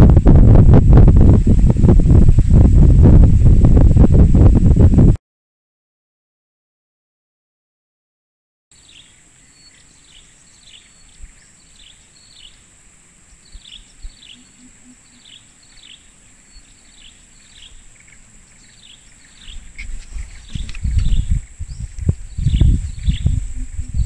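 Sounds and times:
low rumbling thumps: 0.0 - 5.2, 20.1 - 24.0
bird chirping: 8.7 - 24.0.

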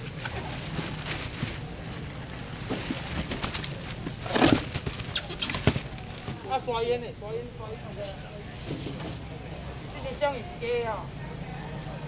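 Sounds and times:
plastic bag rustling and crinkling: 0.0 - 7.0, 7.7 - 10.4.

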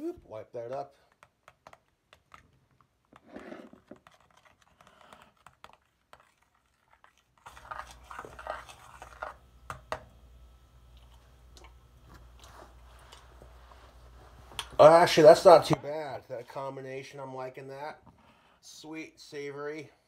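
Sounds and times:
low steady hum: 7.4 - 20.0.

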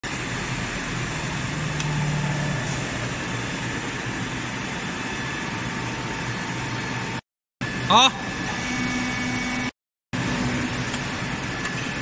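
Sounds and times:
machinery drone and hum: 0.0 - 12.0.

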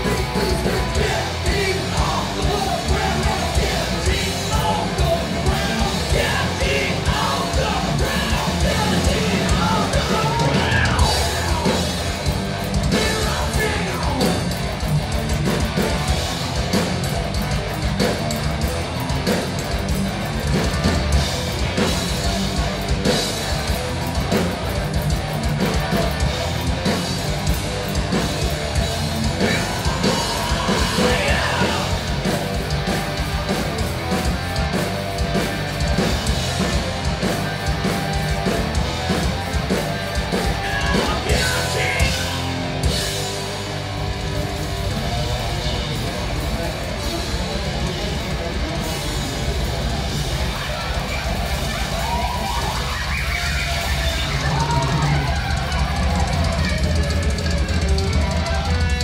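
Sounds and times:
people singing: 0.0 - 12.0, 12.9 - 14.4, 29.3 - 32.4, 40.3 - 42.7
bass guitar: 0.0 - 59.0
drum kit: 0.0 - 59.0
electric guitar: 0.0 - 59.0.

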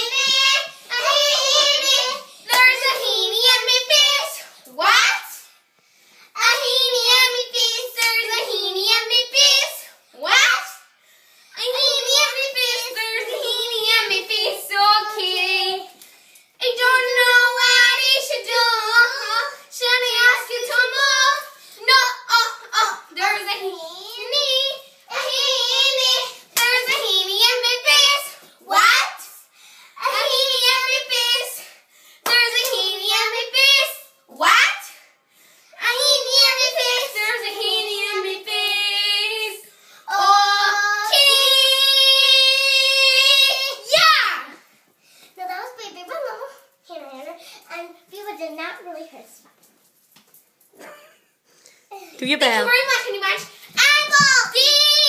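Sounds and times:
girls singing in silly voices: 0.0 - 5.4, 6.4 - 10.6, 11.5 - 29.2, 30.0 - 31.6, 32.2 - 34.6, 35.8 - 44.0, 53.7 - 55.0.

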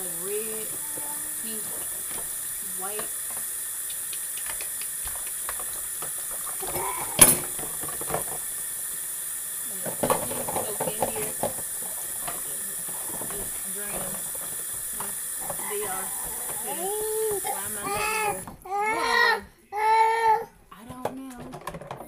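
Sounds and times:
dishes clattering: 0.0 - 9.1, 9.7 - 19.4, 20.8 - 22.0
steady hiss: 0.0 - 18.8
dishes splashing in soapy water: 0.0 - 22.0
dishes knocking together: 0.7 - 8.5, 9.8 - 18.6.

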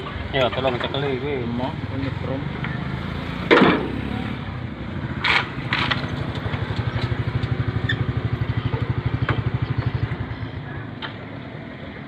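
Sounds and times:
engine idling: 3.8 - 12.0.

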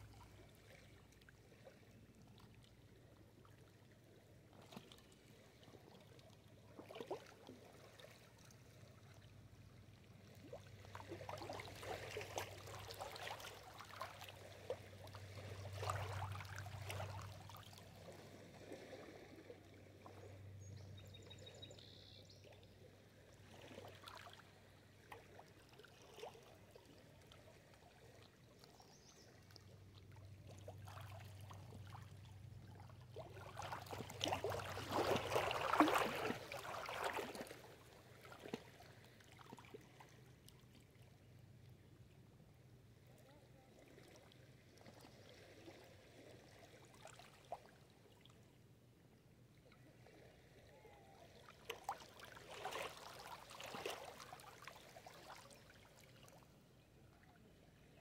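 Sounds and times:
waves lapping against rocky shore: 33.1 - 40.0.

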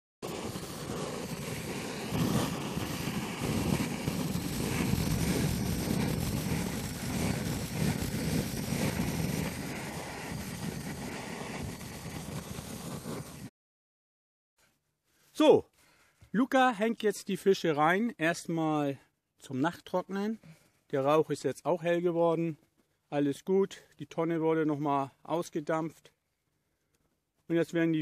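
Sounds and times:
gas torch burning: 0.2 - 13.5.

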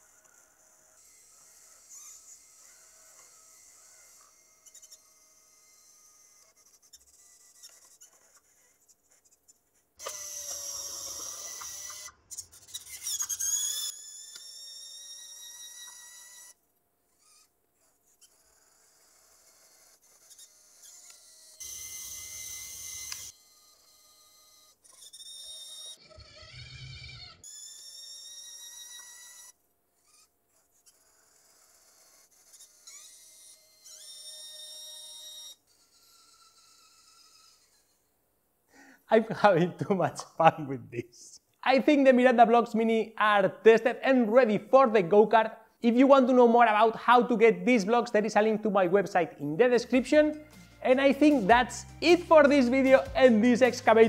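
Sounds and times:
servos whining: 0.0 - 38.0, 49.5 - 54.0.

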